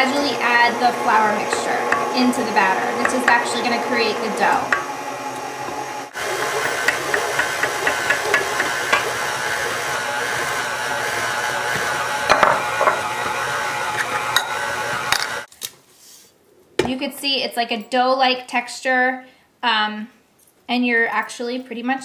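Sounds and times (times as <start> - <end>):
mixer rattling and ticking: 0.0 - 13.4
stand mixer motor whine: 0.0 - 15.5.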